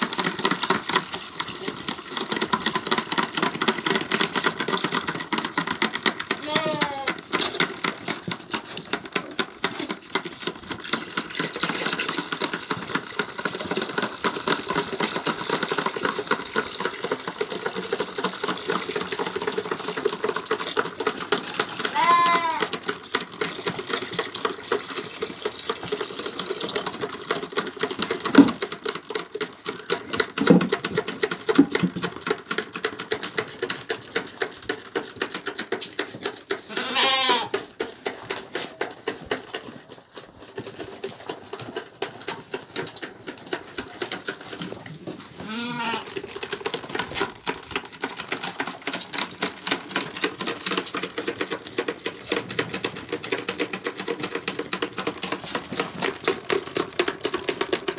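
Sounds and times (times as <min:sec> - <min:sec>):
lambs sucking from teats: 0:00.0 - 0:57.9
lamb bleating: 0:06.4 - 0:07.1, 0:21.4 - 0:22.7, 0:36.7 - 0:37.5, 0:45.4 - 0:46.1.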